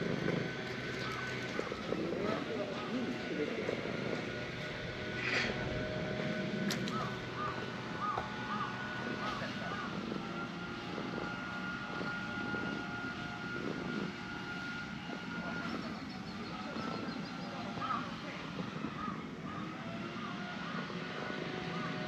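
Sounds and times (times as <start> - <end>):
distant engine drone with whine: 0.0 - 22.0.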